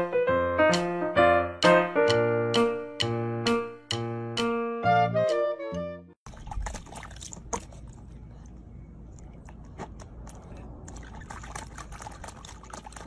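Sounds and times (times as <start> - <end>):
water splashing in plastic tub: 6.2 - 8.2, 10.1 - 13.0.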